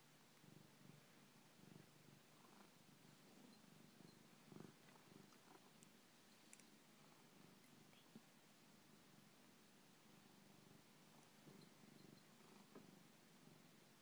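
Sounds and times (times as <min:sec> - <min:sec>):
cat purring: 0:00.0 - 0:14.0
faint clicks: 0:04.8 - 0:06.8.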